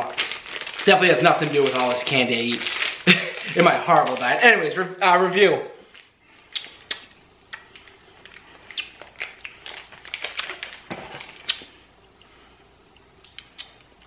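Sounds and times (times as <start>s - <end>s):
plastic snack bag crinkling: 0.0s - 4.8s, 5.9s - 7.0s, 7.7s - 11.8s.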